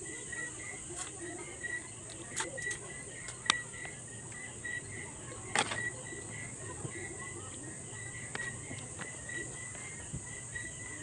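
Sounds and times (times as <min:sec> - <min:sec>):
cricket chirping: 0:00.0 - 0:11.0.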